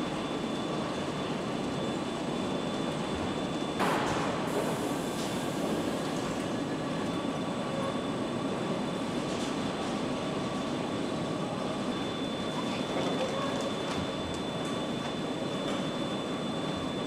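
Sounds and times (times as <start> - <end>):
factory machinery rumbling hiss: 3.8 - 11.8.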